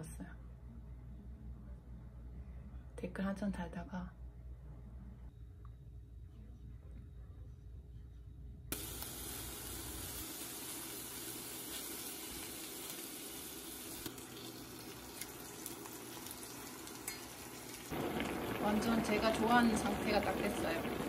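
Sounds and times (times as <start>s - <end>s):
food sizzling in a pan: 8.7s - 21.0s.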